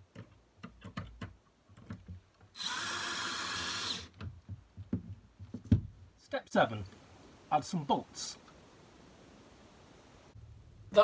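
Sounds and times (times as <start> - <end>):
handling clicks and knocks: 0.0 - 2.5, 4.1 - 6.1
cordless drill running: 2.6 - 4.1.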